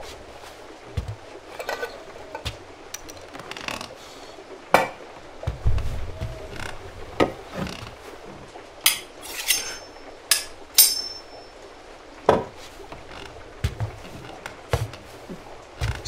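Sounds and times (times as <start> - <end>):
knife blade metallic clinks: 8.9 - 11.4.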